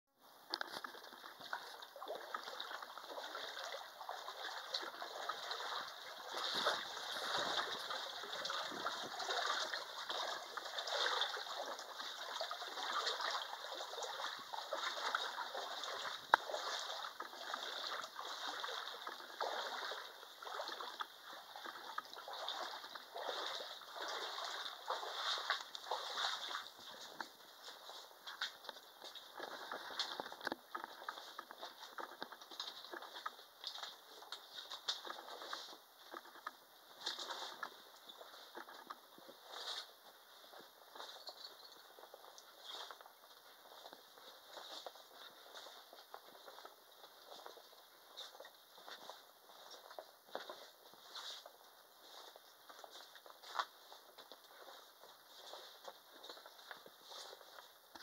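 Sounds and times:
footsteps splashing in shallow water: 0:00.3 - 0:58.0.

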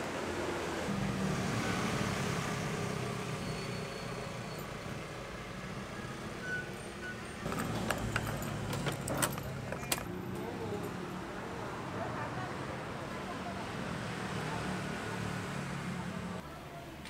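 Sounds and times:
engine humming: 0:07.4 - 0:11.6
key jangling: 0:07.5 - 0:10.1.

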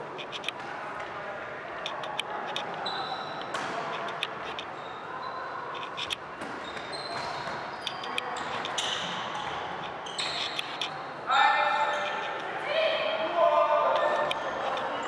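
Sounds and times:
sports hall background noise: 0:00.0 - 0:15.0
ball bouncing: 0:03.4 - 0:04.3, 0:06.1 - 0:09.6.

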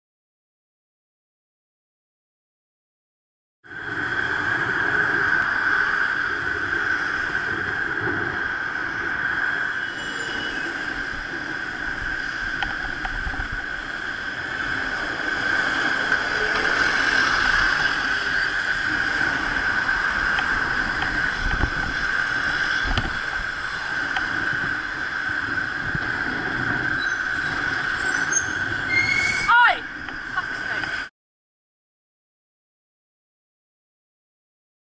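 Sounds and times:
high-pitched whine: 0:03.7 - 0:31.1
road traffic: 0:03.7 - 0:31.1
wind on microphone: 0:03.7 - 0:31.1.

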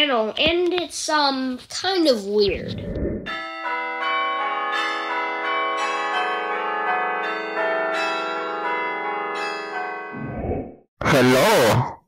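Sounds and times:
bell-like chimes: 0:03.3 - 0:10.2.

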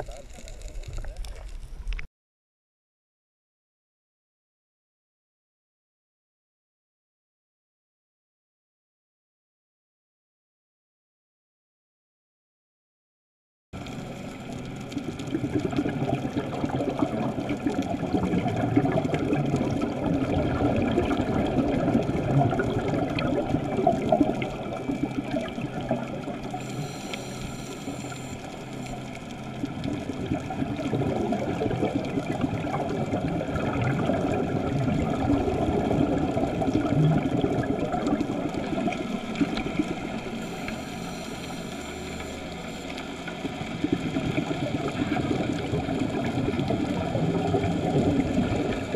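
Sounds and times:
underwater exhaled bubbles: 0:00.0 - 0:02.0, 0:13.8 - 0:48.9.

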